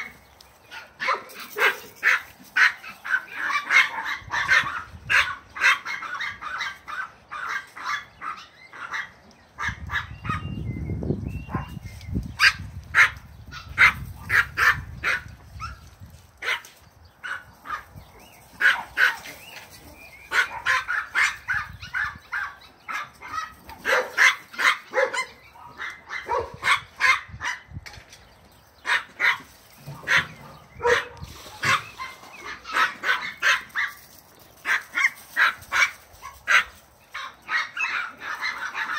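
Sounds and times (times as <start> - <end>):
dogs barking: 0.0 - 10.6, 11.4 - 27.7, 28.8 - 38.9.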